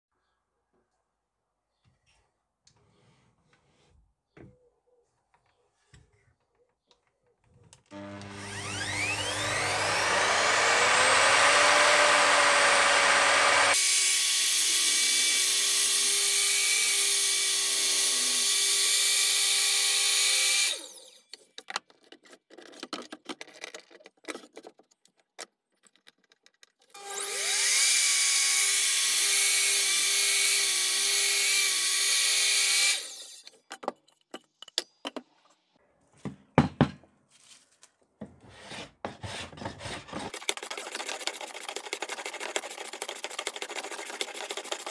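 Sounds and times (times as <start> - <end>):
mitre saw cutting wood: 7.9 - 21.3, 26.9 - 33.5, 38.5 - 44.9.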